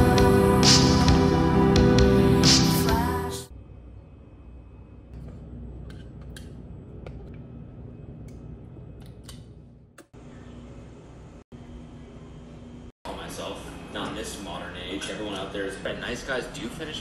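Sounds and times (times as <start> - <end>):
low room hum: 3.5 - 17.0.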